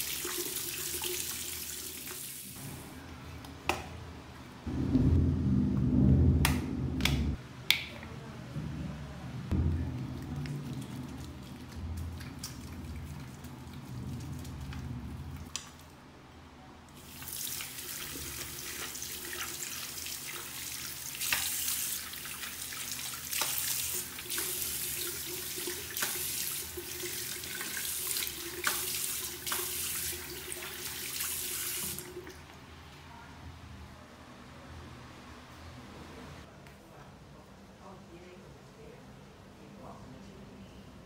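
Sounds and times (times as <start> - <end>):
faucet running: 0.0 - 2.6, 17.0 - 32.4.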